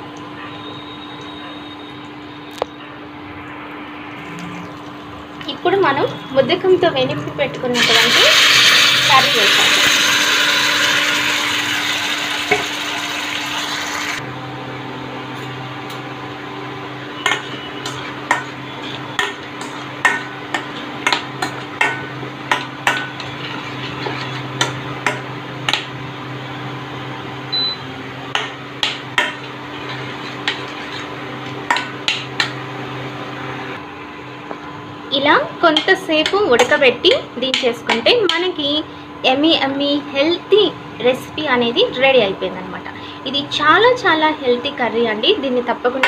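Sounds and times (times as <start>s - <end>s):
curry sizzling in hot oil: 7.8s - 14.2s, 17.3s - 25.9s, 28.3s - 32.6s
steel spoon scraping in steel pan: 17.2s - 20.8s, 22.6s - 24.8s, 29.2s - 31.2s.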